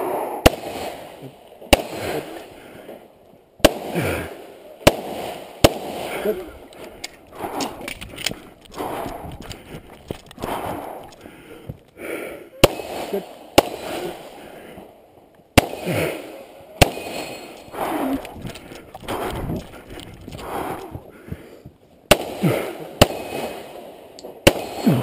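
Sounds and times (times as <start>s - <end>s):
pistol shots: 0.4s - 2.5s, 3.6s - 11.2s, 12.6s - 14.5s, 15.6s - 21.0s, 22.1s - 25.0s.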